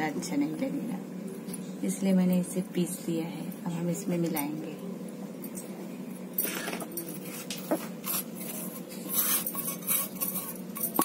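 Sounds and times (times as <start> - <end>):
steel bowl scraping: 6.4 - 11.0.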